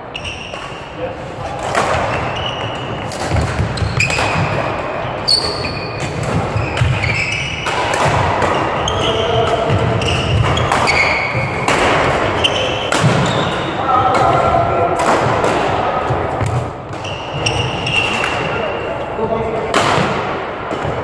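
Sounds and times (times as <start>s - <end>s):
court shoes squeaking: 0.0s - 14.4s, 15.9s - 19.2s
racket striking shuttlecock: 1.6s - 14.3s.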